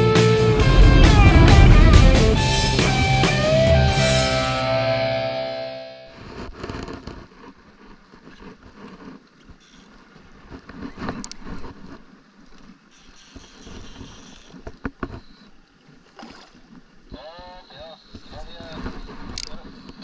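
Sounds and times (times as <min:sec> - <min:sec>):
wind buffeting microphone: 0:00.6 - 0:04.0
water sloshing around kayak: 0:06.2 - 0:20.0.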